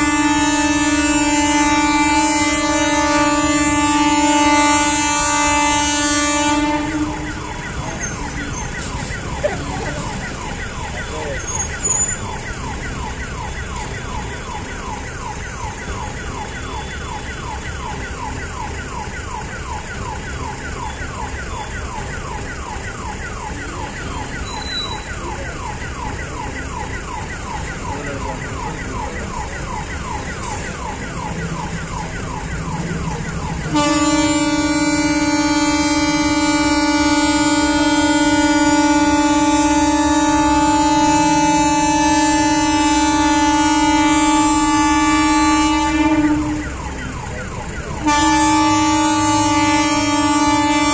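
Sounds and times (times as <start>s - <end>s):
steady horn-like tone: 0.0s - 8.9s, 33.2s - 46.8s, 48.0s - 50.9s
idling motorcycles and traffic: 0.0s - 50.9s
electronic chirping alarm: 6.6s - 33.8s.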